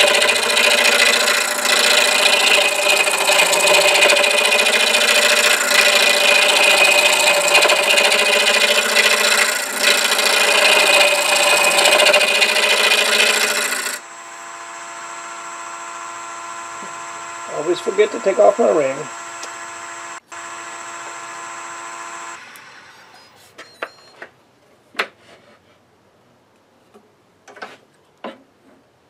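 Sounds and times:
gouge rasping on spinning wood: 0.0 - 14.0, 14.9 - 20.2
lathe humming: 0.0 - 23.1.

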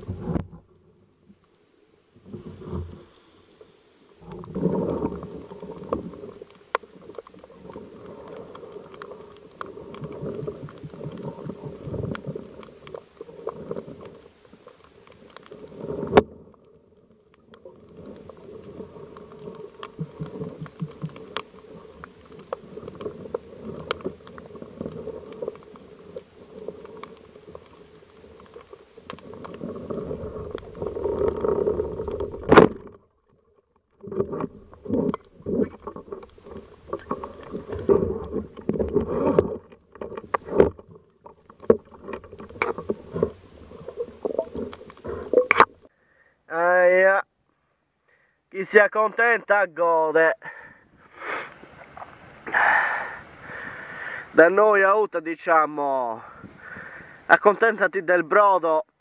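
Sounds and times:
faint clicks: 2.4 - 33.0.

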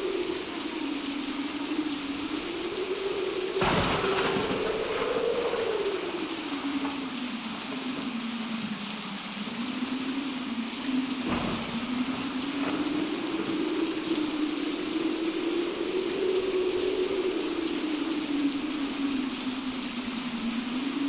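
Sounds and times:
howling wind: 0.0 - 21.0
steady rain: 0.0 - 21.0
thunder crack: 3.4 - 7.5, 10.9 - 16.0.

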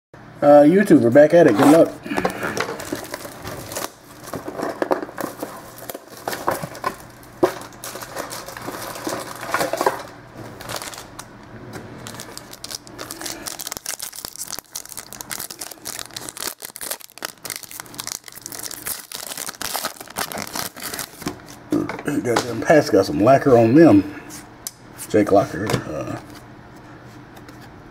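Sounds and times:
foil wrapper crinkling: 2.1 - 11.3, 12.0 - 21.6.

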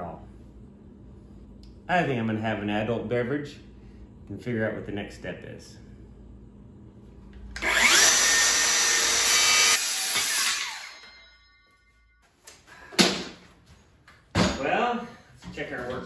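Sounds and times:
circular saw cutting wood: 7.6 - 11.3.

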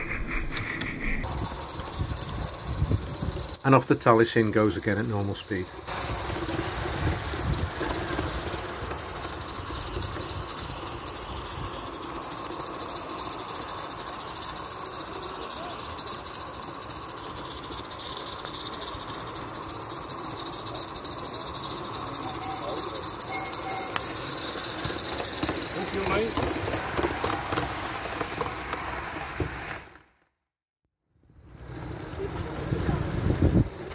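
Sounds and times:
steam locomotive hissing and chuffing: 1.2 - 30.0, 31.5 - 33.9.

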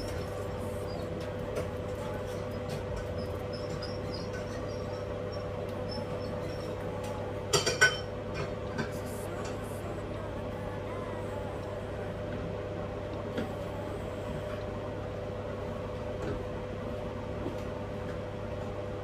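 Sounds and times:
steady low hum: 0.0 - 19.0
cookware clinking: 7.5 - 8.1.

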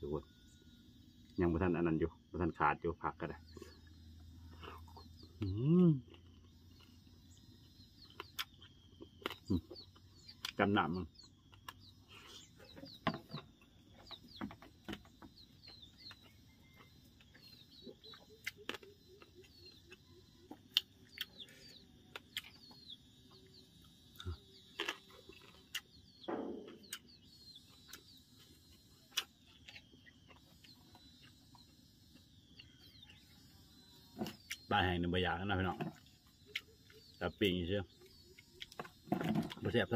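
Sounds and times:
birds chirping: 0.0 - 39.9
clicks and smacks of eating: 8.0 - 10.7, 11.4 - 11.9, 14.0 - 21.5, 22.1 - 22.9, 27.8 - 31.7.

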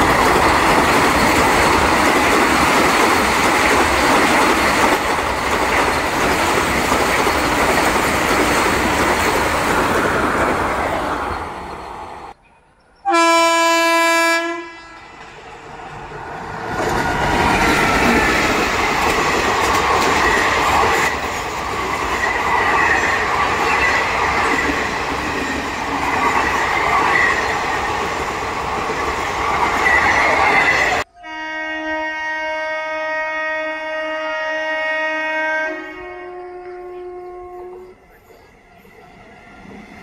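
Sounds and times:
train rumbling on rails: 0.0 - 31.3, 33.1 - 40.0
train horn: 13.0 - 15.1, 31.0 - 38.0.

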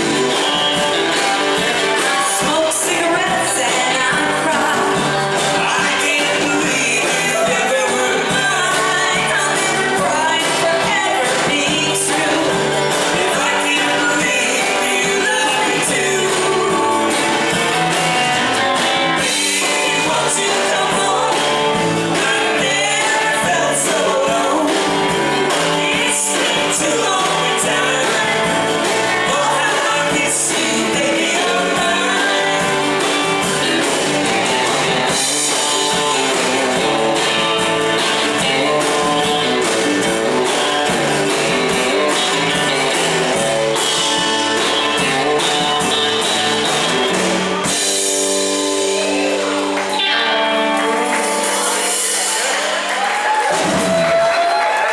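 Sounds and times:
bass guitar: 0.0 - 54.9
drum kit: 0.0 - 54.9
electric guitar: 0.0 - 54.9
woman singing: 1.5 - 17.3, 19.4 - 33.1.

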